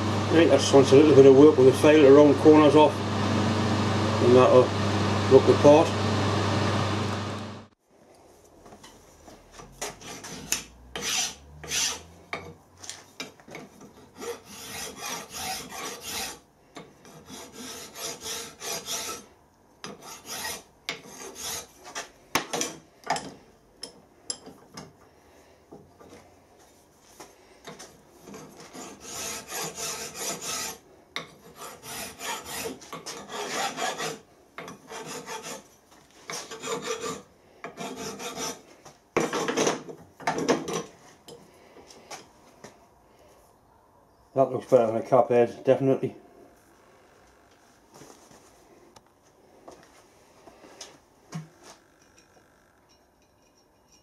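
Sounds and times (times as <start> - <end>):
file rasping on metal: 9.8 - 12.4, 13.8 - 21.8, 28.2 - 39.7.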